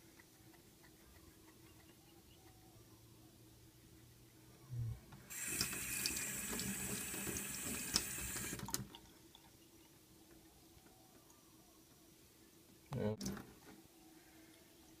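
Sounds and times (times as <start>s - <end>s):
tap water running into sink: 5.3s - 9.0s.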